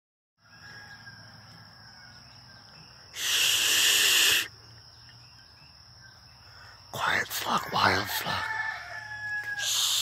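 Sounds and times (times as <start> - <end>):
high insect trill: 0.4 - 10.0
person shushing: 3.2 - 4.5.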